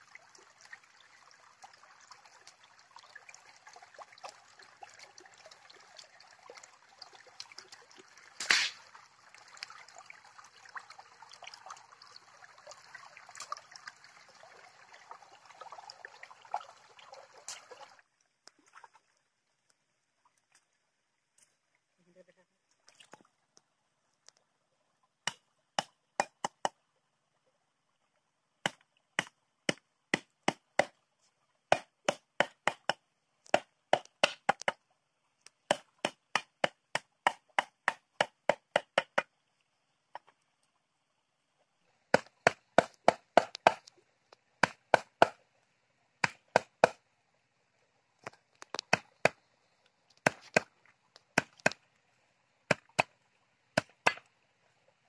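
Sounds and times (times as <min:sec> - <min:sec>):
blade chopping on wooden board: 0:31.7 - 0:34.8.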